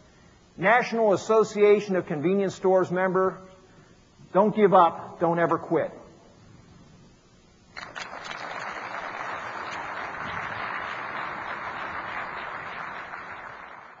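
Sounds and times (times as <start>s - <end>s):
audience applauding: 7.8s - 14.0s.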